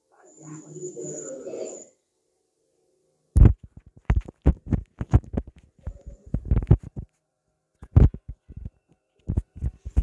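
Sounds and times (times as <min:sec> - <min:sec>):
low thumps and clicks: 0:03.4 - 0:07.1.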